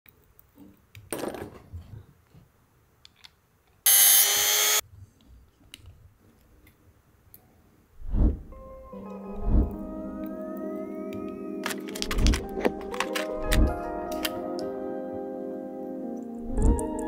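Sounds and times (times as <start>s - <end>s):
rotary tool cutting metal whine: 3.9s - 4.8s.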